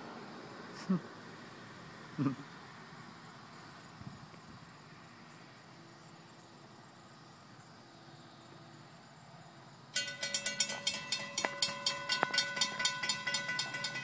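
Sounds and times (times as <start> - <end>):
faint insects chirring: 0.0 - 14.0
railroad crossing bell ringing: 10.0 - 14.0.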